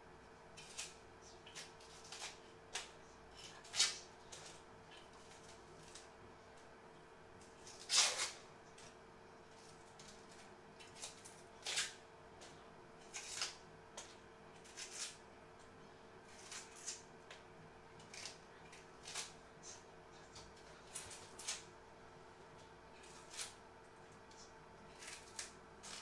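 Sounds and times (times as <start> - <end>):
faint steady hum: 0.0 - 26.0
knife peeling onion skin: 0.6 - 6.1, 7.6 - 8.9, 9.5 - 12.0, 13.0 - 15.2, 16.3 - 17.4, 18.0 - 19.4, 20.4 - 21.7, 23.0 - 23.6, 24.4 - 26.0.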